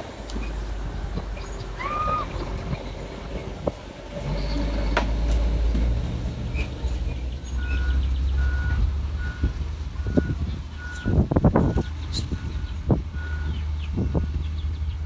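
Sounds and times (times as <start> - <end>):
heavy machine engine rumble: 0.0 - 15.0
reversing alarm beeping: 7.6 - 14.4.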